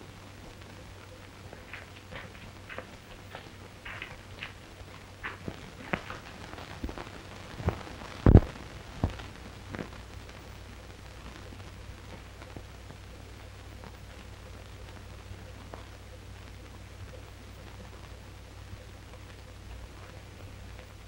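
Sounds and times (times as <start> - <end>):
film soundtrack hiss and hum: 0.0 - 21.0
footsteps walking: 1.2 - 10.0.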